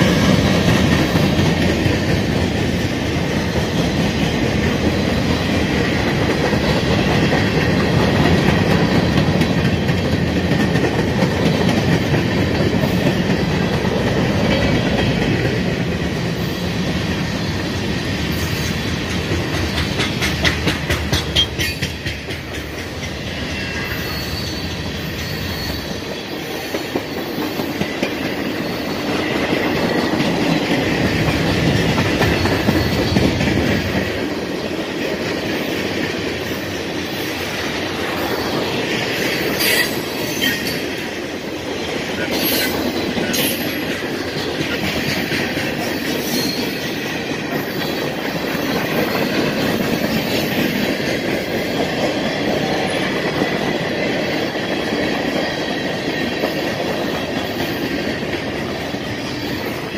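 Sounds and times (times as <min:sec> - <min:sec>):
wheels clicking over rail joints: 0:00.0 - 0:16.4, 0:18.8 - 0:24.0
train wheels rumbling on rails: 0:00.0 - 0:59.9
faint high wheel squeal: 0:23.5 - 0:26.3, 0:32.4 - 0:33.2, 0:46.2 - 0:46.8.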